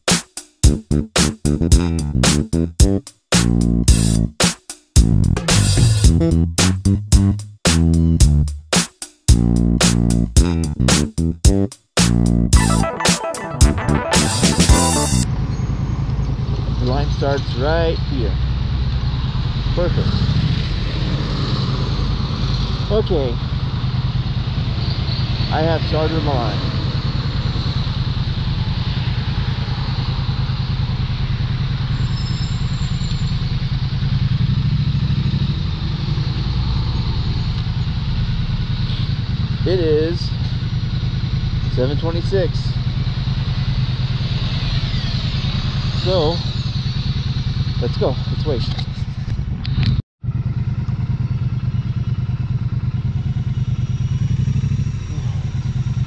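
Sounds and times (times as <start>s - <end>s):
vehicle engine idling: 15.2s - 20.0s, 21.9s - 56.0s.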